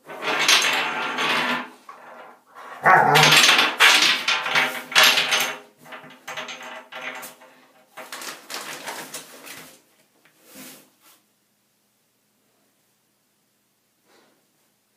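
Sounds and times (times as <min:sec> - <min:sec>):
metal drain plug clattering: 0:03.1 - 0:07.4.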